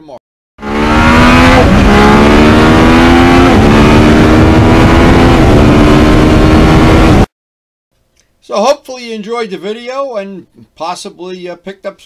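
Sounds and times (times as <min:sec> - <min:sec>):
motorcycle engine accelerating: 0:00.6 - 0:07.3.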